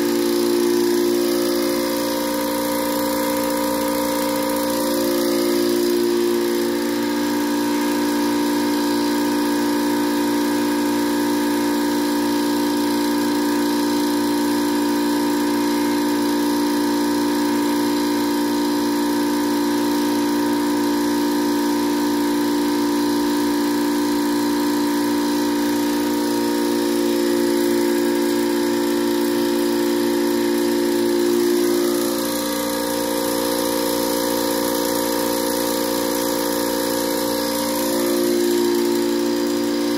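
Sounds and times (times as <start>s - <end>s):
air compressor humming: 0.0s - 39.9s.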